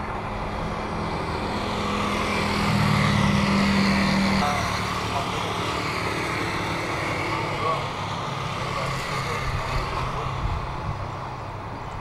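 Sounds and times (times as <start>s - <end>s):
airliner engines passing: 0.0s - 12.0s
low hum: 0.8s - 4.9s.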